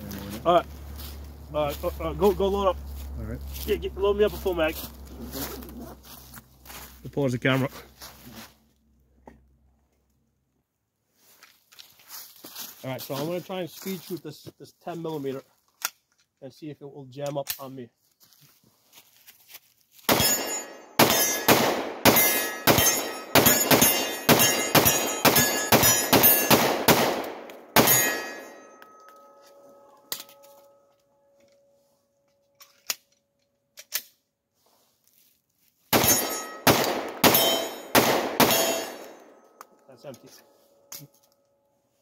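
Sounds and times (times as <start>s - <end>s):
pistol shots: 20.1s - 28.5s, 35.9s - 39.3s
faint ringing tone: 28.5s - 32.4s.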